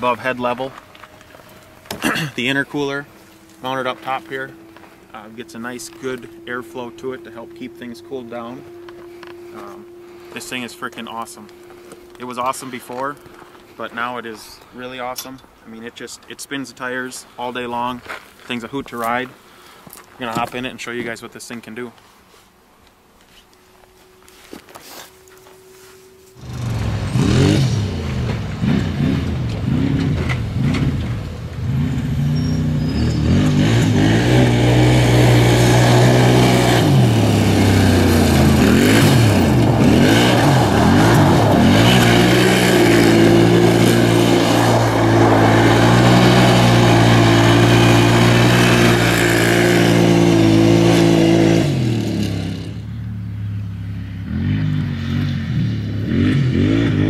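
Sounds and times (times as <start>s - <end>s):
engine revving hard: 26.4s - 52.8s, 54.2s - 57.0s
tyres spinning on gravel: 32.3s - 49.8s.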